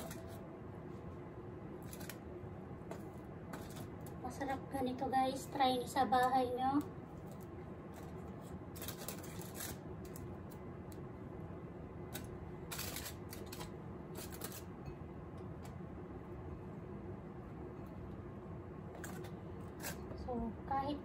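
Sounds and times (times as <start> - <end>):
steady low hum: 0.0 - 21.0
foil crinkling and rustling: 8.8 - 10.2.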